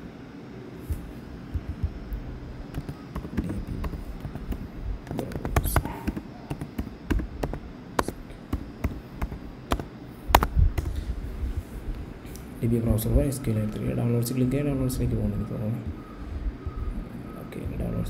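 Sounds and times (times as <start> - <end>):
keyboard typing clicks: 1.5 - 10.9.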